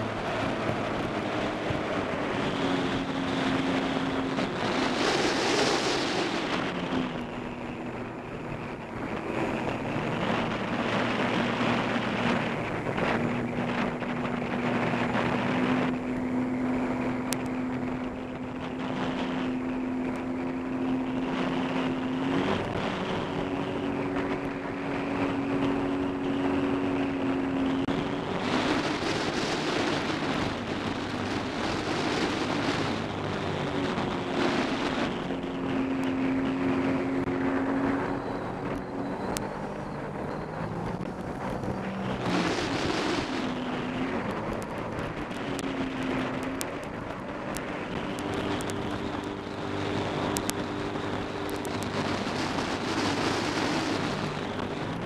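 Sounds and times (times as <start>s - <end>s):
watercraft engine drone: 0.0s - 55.0s
wind on microphone: 0.0s - 55.0s
rushing water spray: 41.4s - 45.4s.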